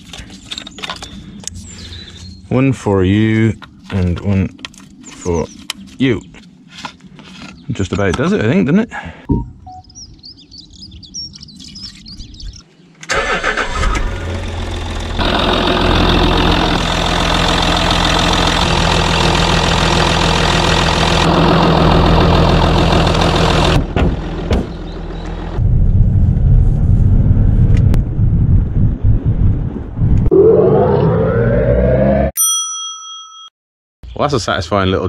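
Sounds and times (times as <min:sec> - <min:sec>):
diesel engine cranking and starting: 0:13.1 - 0:25.6
diesel engine idling: 0:13.1 - 0:25.6.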